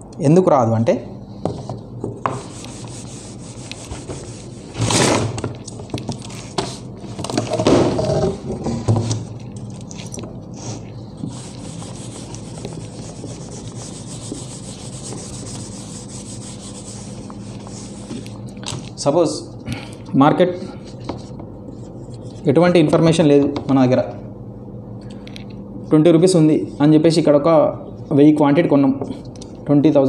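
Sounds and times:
eraser rubbing on whiteboard: 2.3s - 4.8s, 10.6s - 18.3s.

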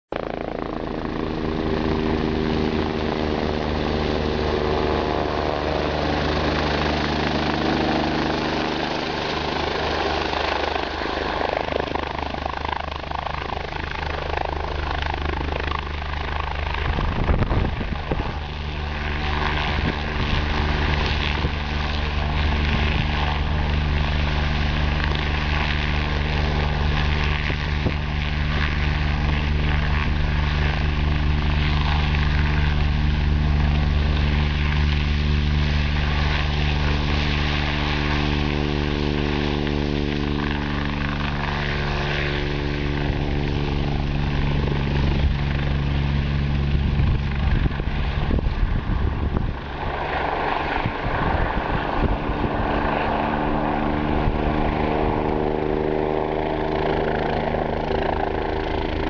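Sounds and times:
helicopter turbine and rotors: 0.1s - 59.0s
rotor wash buffeting microphone: 14.3s - 59.0s.

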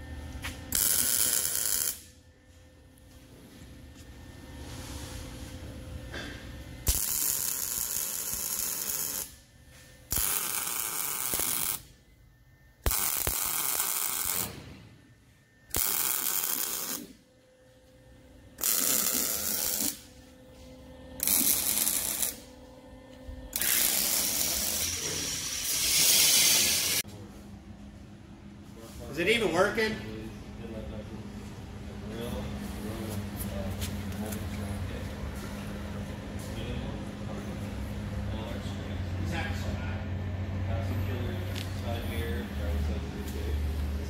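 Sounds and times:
welder hissing: 0.7s - 2.1s, 6.8s - 9.3s, 10.1s - 11.8s, 12.8s - 14.6s, 15.7s - 17.1s, 18.6s - 20.1s, 21.2s - 22.4s, 23.5s - 27.0s.

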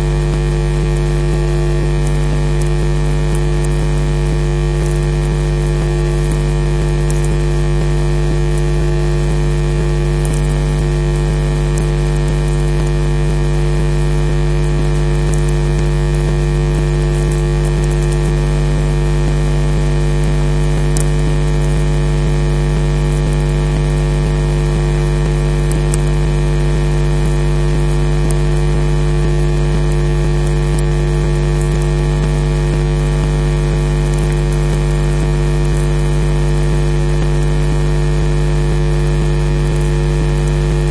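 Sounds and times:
electrical hum and hiss: 0.0s - 40.9s.

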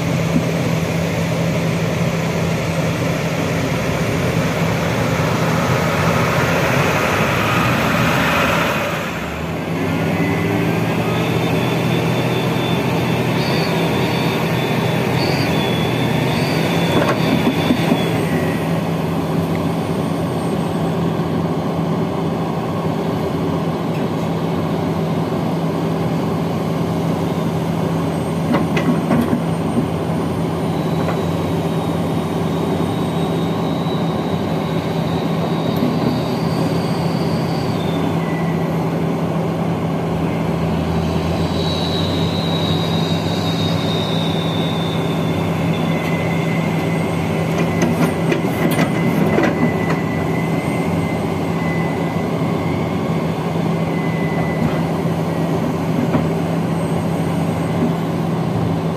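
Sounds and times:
diesel engines running: 0.0s - 58.9s
high metal squeals: 3.0s - 19.2s, 29.4s - 39.0s, 40.2s - 55.8s.

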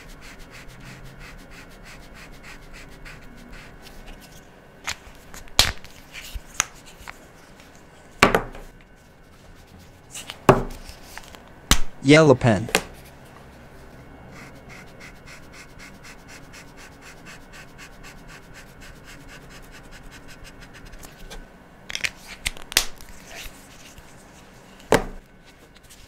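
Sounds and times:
marker scratching on paper: 0.0s - 4.3s, 14.3s - 21.1s.

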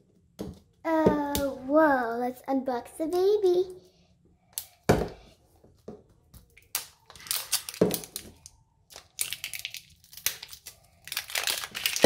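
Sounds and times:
wrapper crinkling and tearing: 6.6s - 12.0s.

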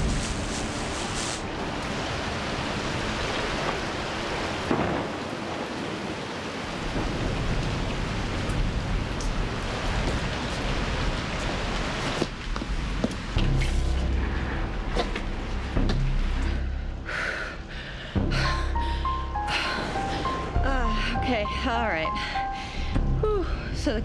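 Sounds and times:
rain-like rushing noise: 0.0s - 24.0s
low rumble: 12.8s - 24.0s.

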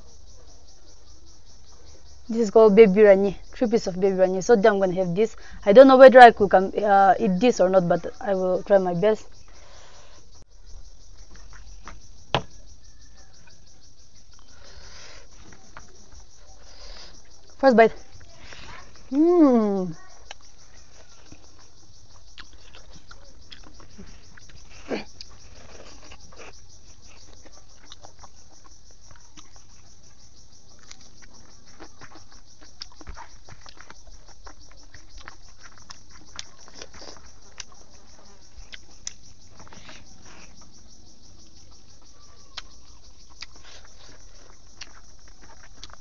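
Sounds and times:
high chirring of insects: 0.0s - 46.0s
person chewing and lip-smacking: 22.2s - 29.9s, 30.8s - 40.6s, 42.5s - 46.0s.

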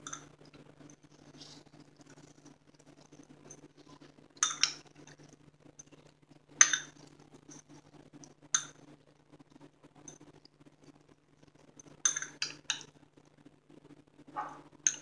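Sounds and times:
faint steady hum: 0.0s - 15.0s
spoon stirring: 10.0s - 12.9s.

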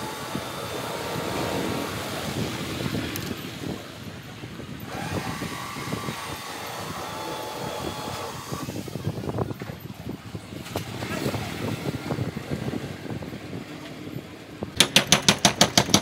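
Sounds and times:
mechanical drone: 0.0s - 9.3s.

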